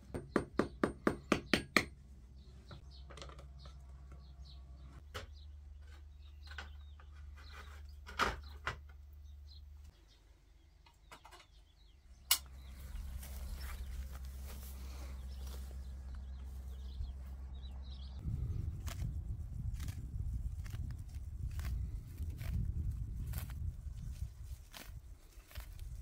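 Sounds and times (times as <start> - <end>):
sharp click: 12.3 - 12.5.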